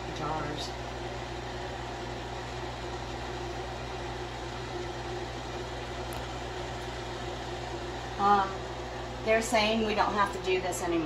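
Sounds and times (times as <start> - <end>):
appliance motor humming: 0.0 - 11.0.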